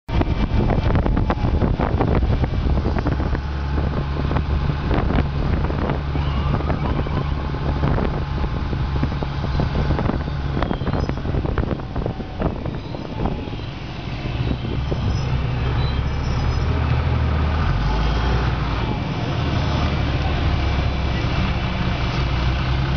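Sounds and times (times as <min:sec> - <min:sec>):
low engine drone: 0:00.1 - 0:22.9.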